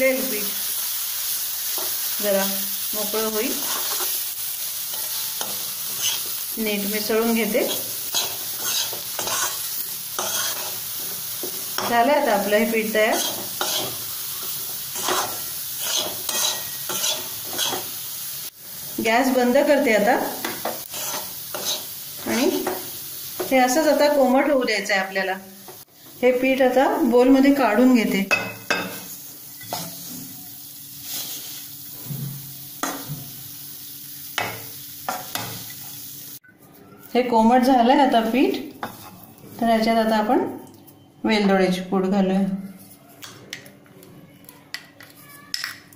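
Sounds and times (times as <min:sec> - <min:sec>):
ghee sizzling: 0:00.0 - 0:41.1
metal spatula scraping pan: 0:04.9 - 0:06.4, 0:07.6 - 0:10.8, 0:13.0 - 0:17.9, 0:20.6 - 0:21.9.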